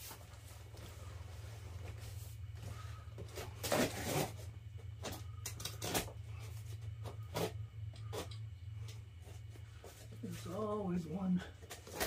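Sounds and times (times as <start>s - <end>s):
low hum: 0.0s - 12.0s
knife slitting tape on cardboard: 3.4s - 4.4s, 5.5s - 6.1s.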